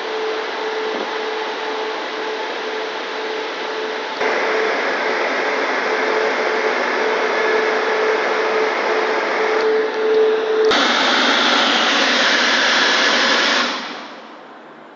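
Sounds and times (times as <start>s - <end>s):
car wash brushes rushing: 10.7s - 14.2s.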